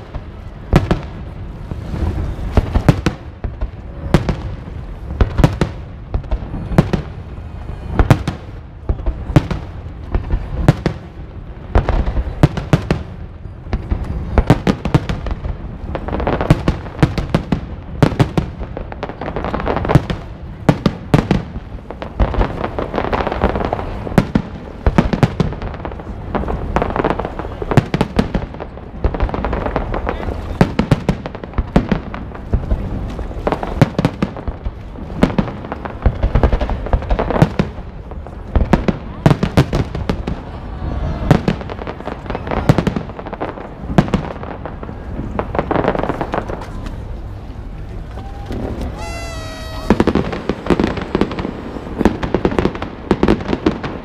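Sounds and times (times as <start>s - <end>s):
firework shells bursting: 48.5s - 52.6s.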